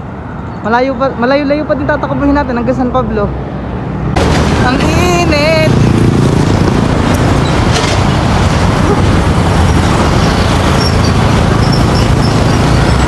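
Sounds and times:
highway traffic noise: 0.0s - 13.0s
wind rumbling on microphone: 4.2s - 13.0s.

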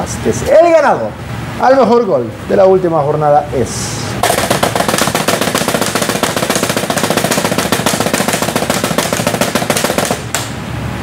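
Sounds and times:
drum roll: 4.2s - 10.5s.

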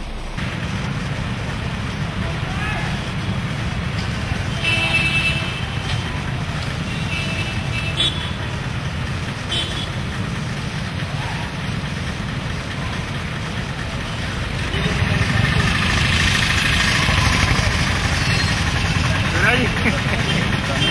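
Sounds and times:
traffic engines rumbling: 0.0s - 20.9s
vehicle horn toots: 4.5s - 5.9s, 9.5s - 10.0s, 20.2s - 20.9s.

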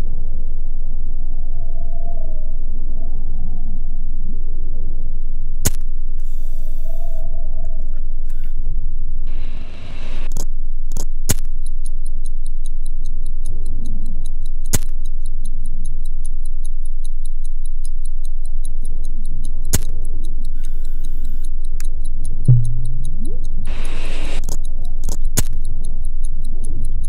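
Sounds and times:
clock-like ticking: 10.9s - 27.0s
sharp hits: 22.5s - 24.1s
heavy low rumbling drone: 22.5s - 24.4s.

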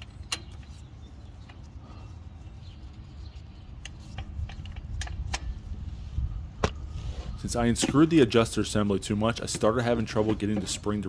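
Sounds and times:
light metallic clicks: 0.0s - 1.7s, 3.7s - 5.7s
steady low rumble: 0.0s - 11.0s.

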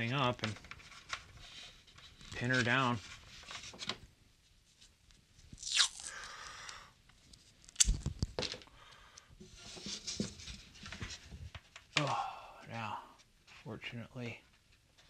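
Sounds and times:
tape ripping off roll: 5.6s - 6.1s.

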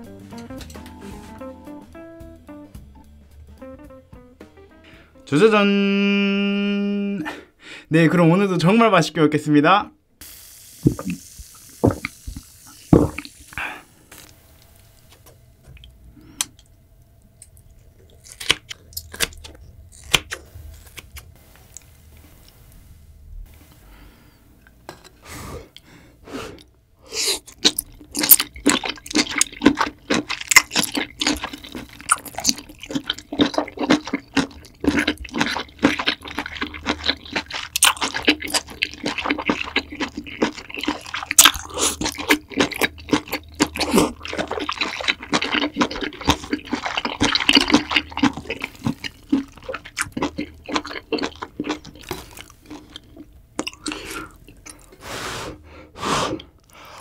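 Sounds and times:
noodles slurping: 26.4s - 57.0s
wet chewing clicks and smacks: 27.4s - 55.0s.

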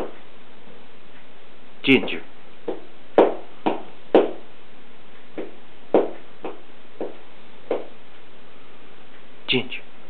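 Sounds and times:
dog tail thumping: 2.0s - 4.5s, 5.4s - 8.0s.

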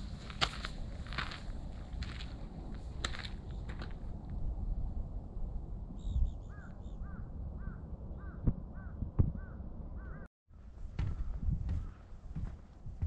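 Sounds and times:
low wind rumble: 0.0s - 13.0s
bird calling: 6.0s - 10.3s
thuds: 11.0s - 12.5s.

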